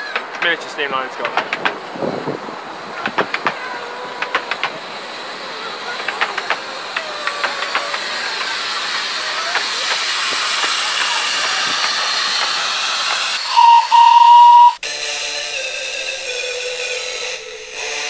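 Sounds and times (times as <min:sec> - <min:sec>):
wheels clicking over rails: 0:00.0 - 0:14.8
steam hissing: 0:00.0 - 0:18.0
steam whistle: 0:03.0 - 0:18.0
music: 0:14.8 - 0:18.0.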